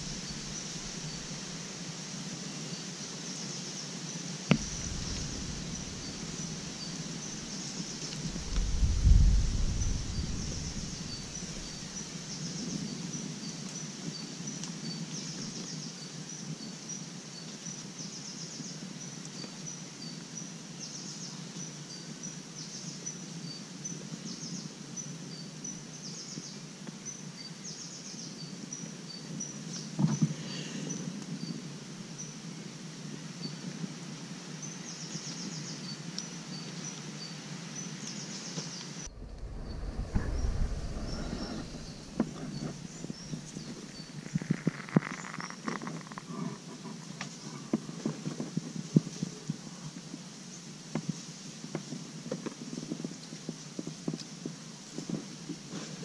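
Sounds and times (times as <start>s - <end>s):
sharp knock: 4.5s - 6.6s.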